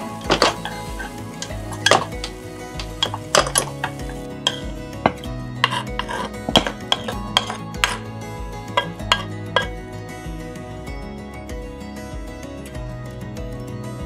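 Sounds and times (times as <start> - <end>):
metal spoon scraping a frying pan: 0.0 - 9.8.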